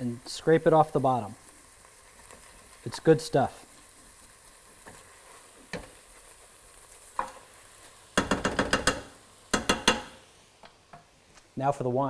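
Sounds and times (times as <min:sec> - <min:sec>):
vegetables sizzling faintly: 0:00.0 - 0:12.0
spoon knocking against pot: 0:08.2 - 0:10.2.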